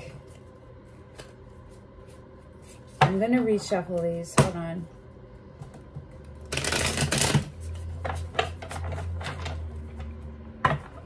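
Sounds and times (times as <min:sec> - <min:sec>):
cards riffle shuffling: 0:06.5 - 0:07.7.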